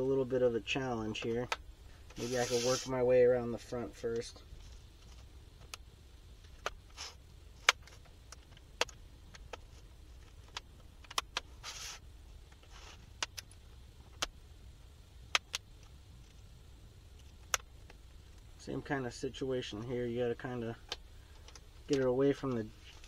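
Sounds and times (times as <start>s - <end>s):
pick scraping plastic: 2.1s - 2.9s.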